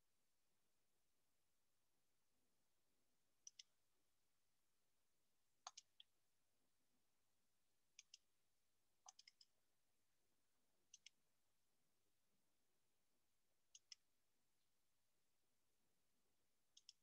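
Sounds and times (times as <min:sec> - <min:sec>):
computer mouse clicks: 0:03.4 - 0:03.7, 0:05.6 - 0:06.1, 0:07.9 - 0:08.2, 0:09.1 - 0:09.5, 0:10.9 - 0:11.2, 0:13.7 - 0:14.0, 0:16.7 - 0:17.0.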